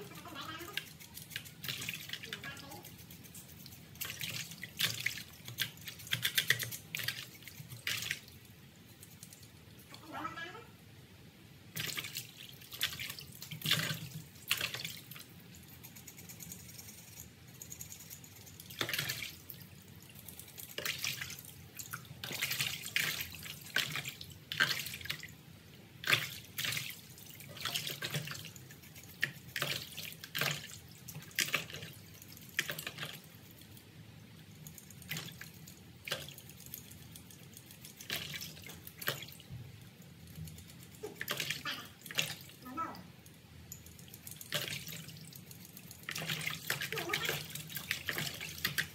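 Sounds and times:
water splashing in plastic basin: 0.0 - 2.7, 11.7 - 15.2, 18.7 - 19.6, 20.7 - 25.3, 26.0 - 33.4, 37.8 - 39.5, 41.0 - 42.6, 44.4 - 45.4, 46.0 - 48.9.

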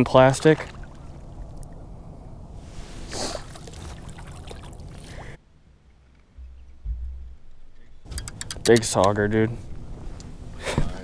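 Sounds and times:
water splashing at boat side: 0.0 - 1.8, 3.4 - 5.4.

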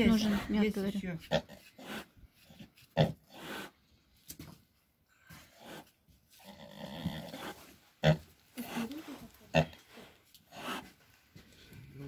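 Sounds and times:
pig grunting: 0.0 - 3.8, 10.5 - 11.0.

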